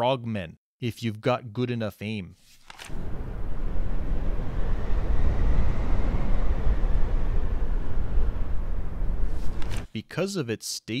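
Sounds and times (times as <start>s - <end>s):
loud low rumble: 2.9s - 9.9s.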